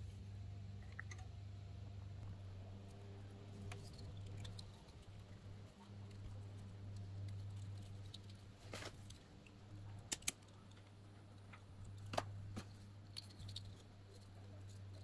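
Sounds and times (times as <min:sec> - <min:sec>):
steady low hum: 0:00.0 - 0:15.0
handling electrical wires: 0:03.5 - 0:15.0.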